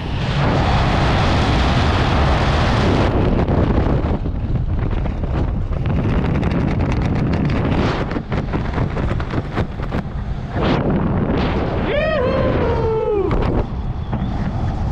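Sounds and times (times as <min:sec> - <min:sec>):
wind buffeting microphone: 0:00.0 - 0:14.9
person whooping: 0:11.8 - 0:13.4.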